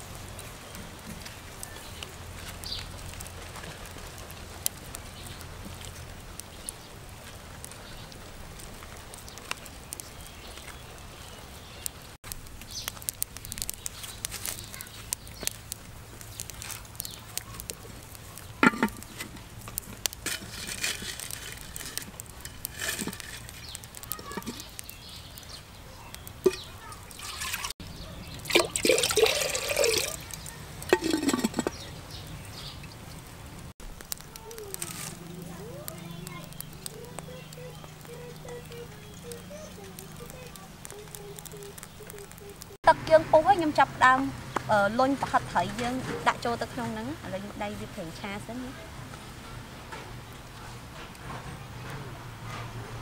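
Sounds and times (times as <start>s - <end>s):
clay pots clicking and knocking: 16.4s - 24.9s, 26.2s - 27.8s, 28.4s - 33.2s.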